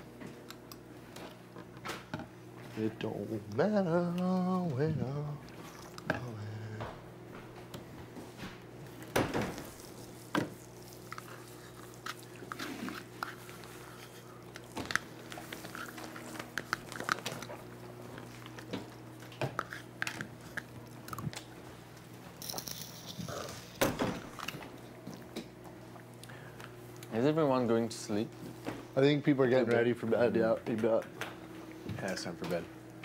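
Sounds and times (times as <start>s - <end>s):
steady low hum: 0.0s - 33.0s
person chewing a snack: 5.5s - 6.3s, 10.6s - 21.5s.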